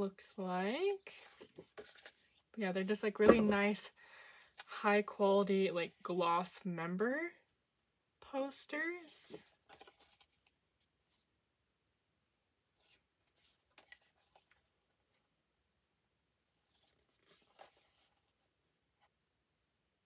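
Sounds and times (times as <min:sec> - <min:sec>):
paper posters rustling: 0:09.0 - 0:11.2
soft paper scrapes: 0:16.6 - 0:19.1.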